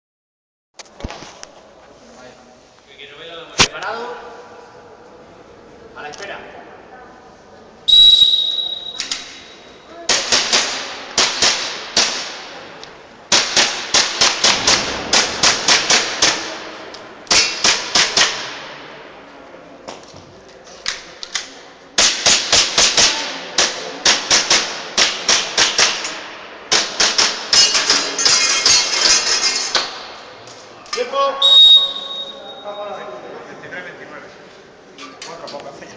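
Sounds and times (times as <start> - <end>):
airsoft pistol shots: 13.3 - 18.7.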